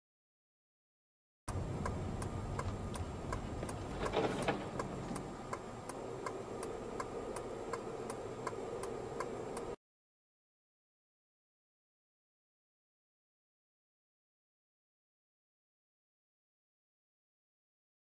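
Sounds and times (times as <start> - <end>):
turn signal clicking: 1.5 - 9.8.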